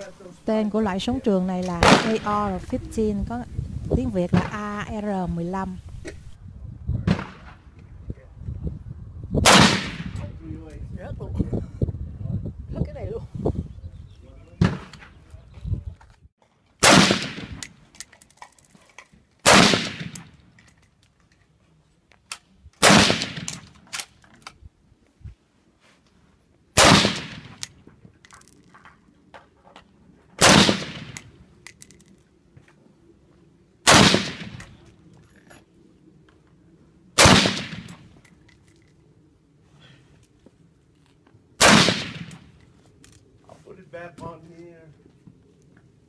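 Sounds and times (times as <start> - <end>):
rifle shots with echo: 1.8 - 2.4, 9.4 - 10.3, 16.8 - 17.7, 19.4 - 20.4, 22.8 - 23.7, 26.8 - 27.6, 30.4 - 31.3, 33.9 - 34.8, 37.2 - 38.0, 41.6 - 42.5.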